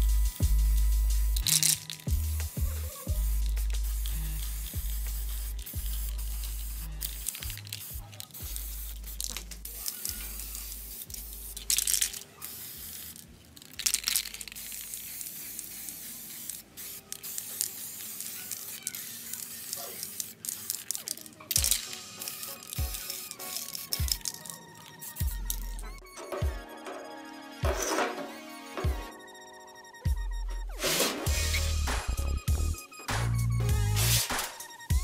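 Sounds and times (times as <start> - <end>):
background music: 0.0 - 10.8, 21.5 - 35.0
spray paint can hissing: 0.0 - 26.0, 30.7 - 35.0.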